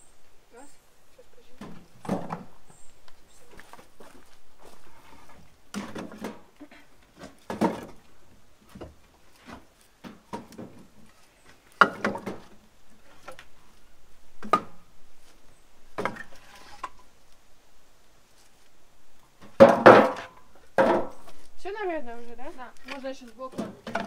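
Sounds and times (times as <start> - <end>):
logs clattering into wheelbarrow: 1.6 - 2.8, 4.9 - 13.6, 16.0 - 17.1, 19.4 - 21.5, 22.7 - 24.0.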